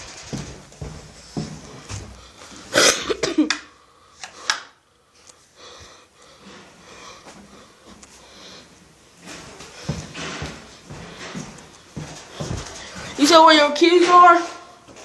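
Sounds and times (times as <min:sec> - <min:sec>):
person coughing: 0:02.7 - 0:03.7.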